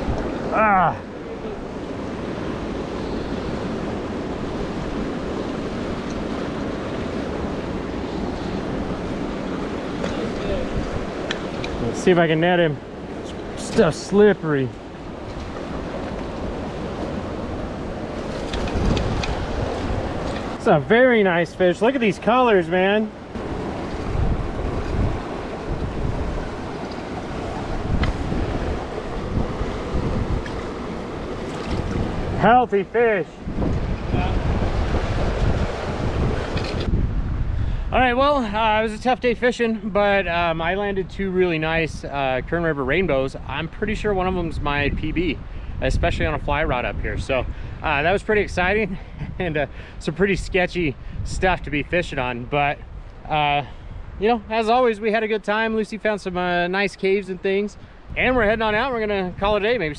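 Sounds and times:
wind rumble on microphone: 0.0 - 12.0, 14.8 - 20.6, 23.3 - 32.6, 33.3 - 39.3, 40.2 - 54.5, 57.7 - 59.9
river flowing: 0.0 - 37.0.

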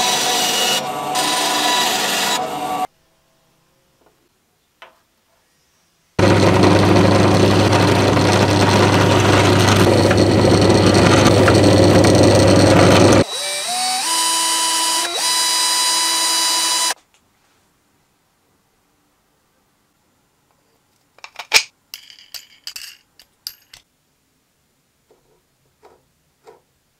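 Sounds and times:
drill motor whine: 0.0 - 2.9, 6.2 - 17.0
electric drill boring through wood: 0.0 - 2.9, 6.2 - 17.0.

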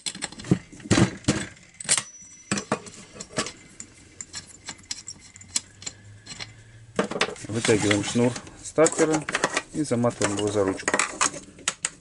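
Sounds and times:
wrench clinking on metal: 1.8 - 6.6.

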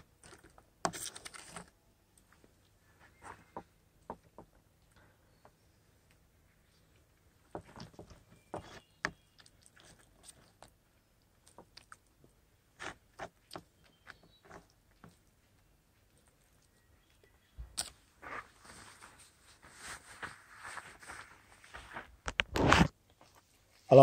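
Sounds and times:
spoon scraping foil packet: 0.2 - 1.7.

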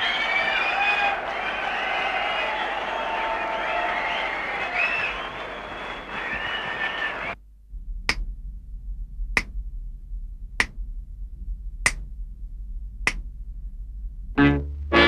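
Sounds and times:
faint low hum: 0.0 - 15.0
finger snaps: 8.1 - 8.3, 10.6 - 10.8, 11.8 - 12.1, 13.0 - 13.3.

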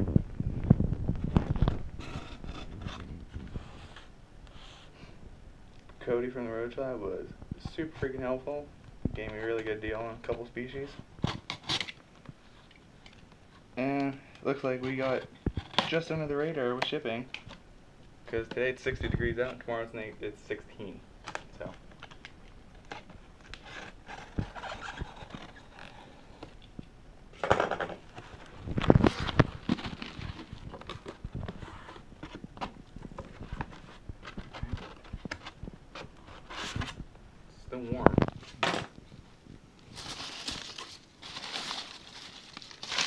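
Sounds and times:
newspaper rustling and crinkling: 28.0 - 37.0, 39.8 - 43.0.

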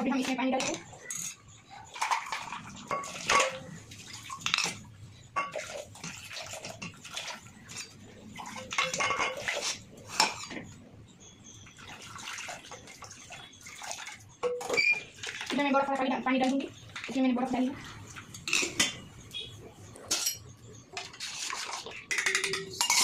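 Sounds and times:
steel vessels clinking: 0.0 - 3.8, 7.7 - 11.8, 18.1 - 19.4, 20.0 - 23.0.

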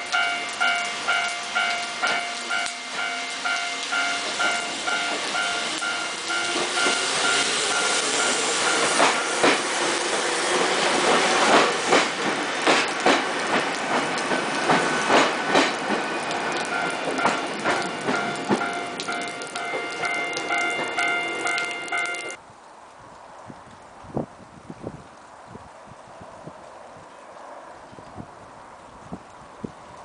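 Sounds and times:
train running noise: 0.0 - 22.4
train wheels clacking over joints: 4.2 - 22.4
ringing bell: 17.9 - 22.4.

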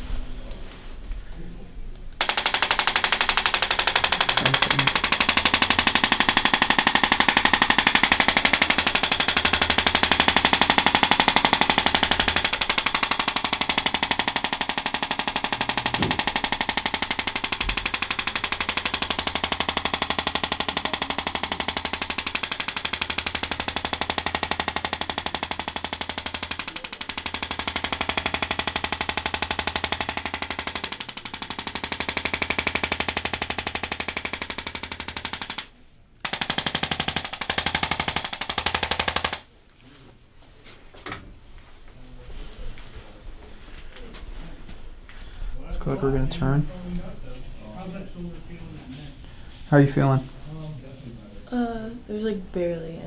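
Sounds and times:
small motorised device buzzing: 2.2 - 35.6.

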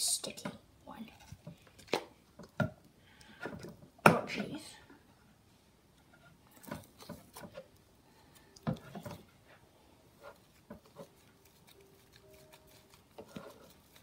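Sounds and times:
slime squishing: 10.3 - 14.0.

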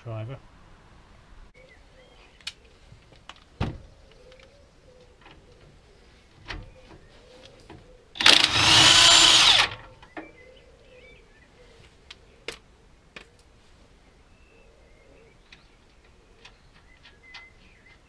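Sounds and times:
impact driver hammering: 8.2 - 9.8.

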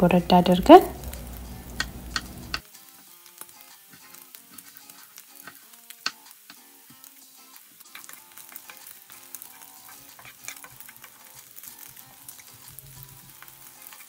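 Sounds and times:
meat sizzling in frying pan: 0.2 - 14.0
wooden spoon stirring: 7.9 - 14.0.

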